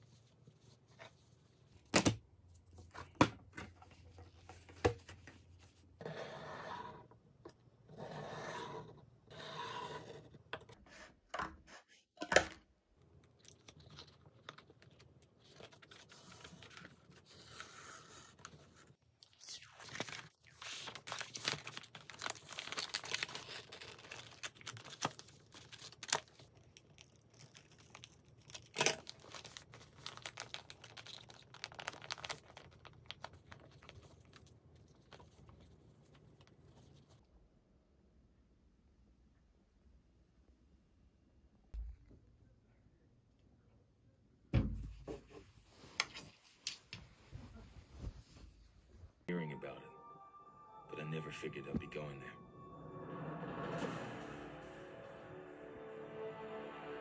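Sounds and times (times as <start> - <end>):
wrapping paper rustling and tearing: 19.2 - 37.0
foil paper crinkling: 19.6 - 35.2.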